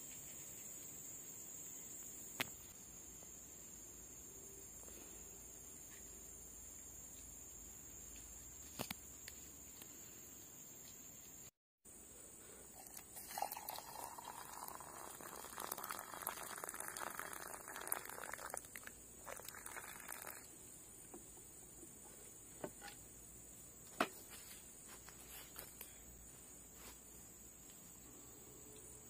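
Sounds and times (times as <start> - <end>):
water pouring into plastic mug: 12.8 - 20.5.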